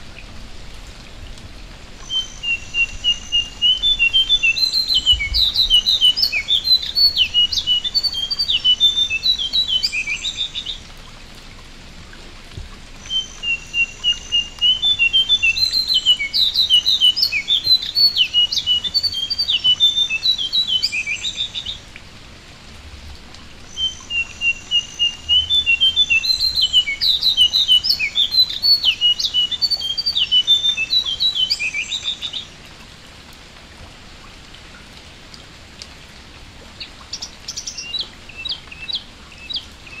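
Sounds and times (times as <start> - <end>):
light rain on water: 0.0 - 40.0
songbird chirping: 2.0 - 10.9, 13.0 - 21.9, 23.6 - 32.6, 36.8 - 40.0.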